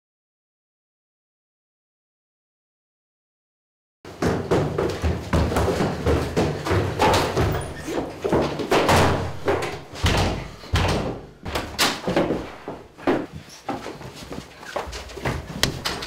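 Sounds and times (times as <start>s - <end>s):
feet pounding on wooden stairs: 4.1s - 16.0s
door banging: 4.2s - 13.3s, 15.6s - 16.0s.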